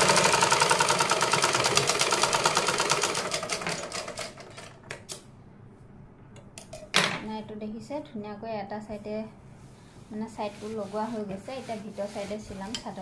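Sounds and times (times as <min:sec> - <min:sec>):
sewing machine clatter: 0:00.0 - 0:04.8.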